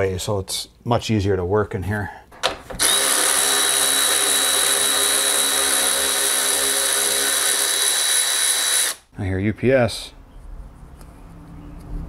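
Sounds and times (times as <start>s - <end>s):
power ratchet whining: 2.8s - 9.0s.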